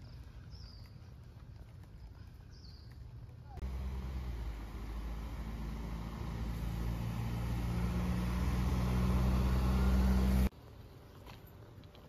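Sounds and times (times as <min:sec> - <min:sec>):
bus engine running: 0:03.6 - 0:10.5.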